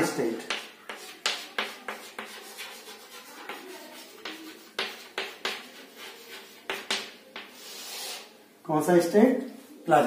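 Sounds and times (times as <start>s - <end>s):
chalk tapping on blackboard: 0.3s - 8.3s
chalk scratching on blackboard: 0.4s - 8.4s.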